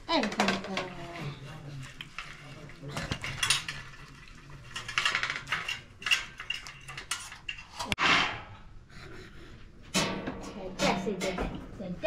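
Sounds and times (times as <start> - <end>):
hard objects clinking and rattling: 2.0 - 7.9.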